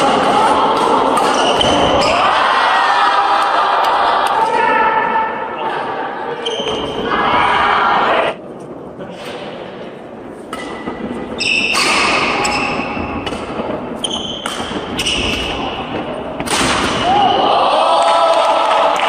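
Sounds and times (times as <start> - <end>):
rackets hitting shuttlecock: 0.1 - 2.2, 10.4 - 17.1
sneakers squeaking on wooden floor: 11.3 - 15.8.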